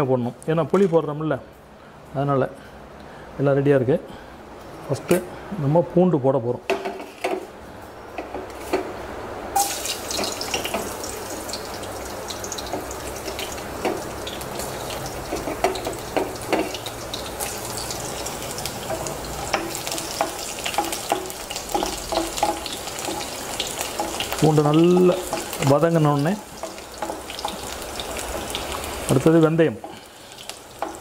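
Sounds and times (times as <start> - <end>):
garlic sizzling in hot oil: 9.6 - 31.0.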